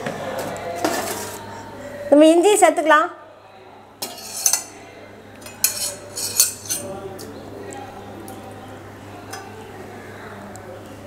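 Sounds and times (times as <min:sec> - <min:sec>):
spoon scraping metal bowl: 0:04.0 - 0:04.7, 0:05.4 - 0:06.9.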